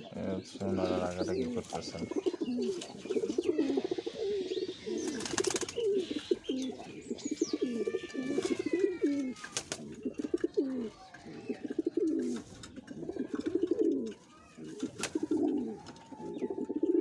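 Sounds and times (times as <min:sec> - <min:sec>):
pigeons cooing: 0:00.0 - 0:17.0
pigeons squabbling: 0:00.0 - 0:17.0
wing flaps: 0:05.0 - 0:05.9.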